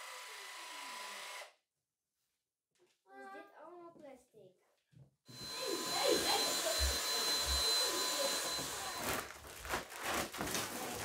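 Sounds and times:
handheld vacuum whining: 0.0s - 1.5s, 5.3s - 9.3s.

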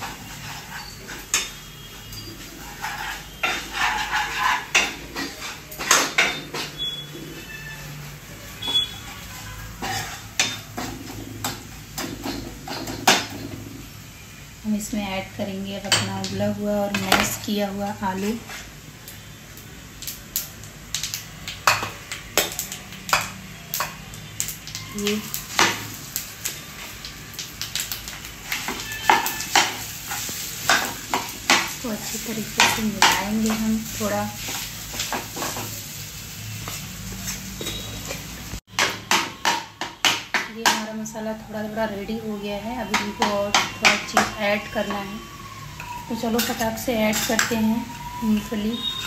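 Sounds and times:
ladle scraping and knocking pan: 2.4s - 7.5s.

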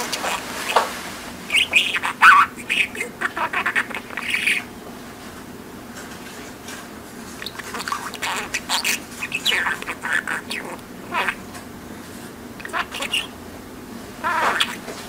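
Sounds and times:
budgerigar chattering: 0.0s - 0.9s, 1.5s - 4.7s, 7.4s - 11.4s, 12.6s - 13.4s, 14.2s - 14.9s.

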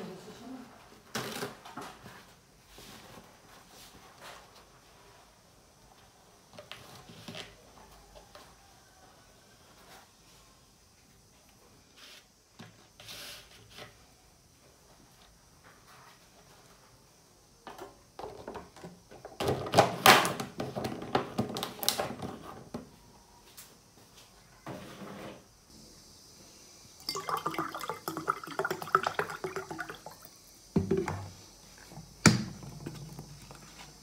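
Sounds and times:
water pouring into mug: 27.0s - 31.2s
dishes knocking and clattering: 30.8s - 31.4s.

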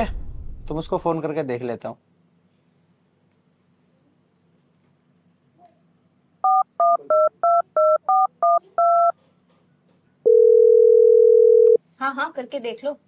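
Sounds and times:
steady low phone line tone: 10.3s - 11.8s.

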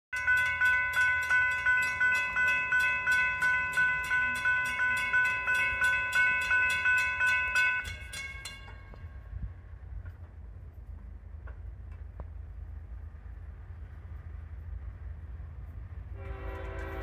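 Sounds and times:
railroad crossing bell ringing: 0.1s - 9.8s, 16.2s - 17.0s.

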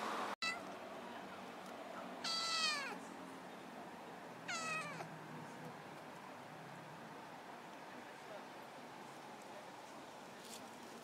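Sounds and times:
kitten meowing: 0.4s - 0.7s, 2.2s - 3.0s, 4.5s - 5.1s.

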